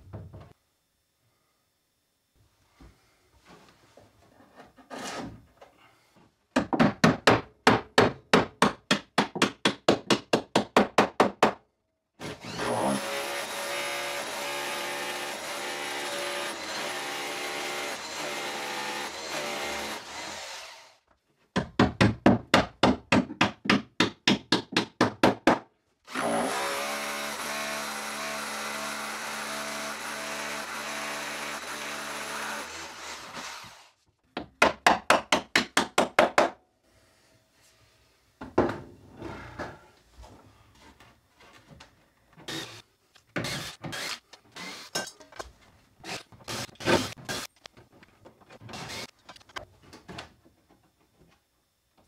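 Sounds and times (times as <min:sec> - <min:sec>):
drill motor running: 0:12.2 - 0:21.0, 0:26.1 - 0:33.9, 0:42.5 - 0:42.8, 0:43.4 - 0:45.0, 0:46.0 - 0:47.5, 0:48.8 - 0:49.1.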